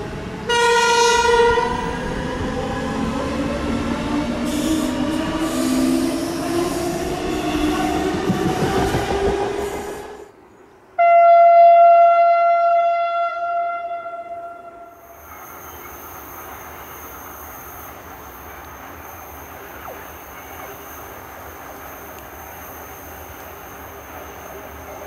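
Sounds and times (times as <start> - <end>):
train horn: 0.5 - 1.8, 11.0 - 15.1.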